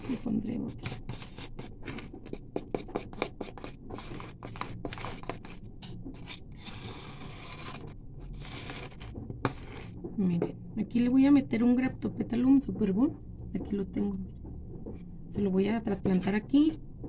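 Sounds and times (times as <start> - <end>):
trowel scraping potting soil: 0.0 - 5.6, 6.2 - 10.0.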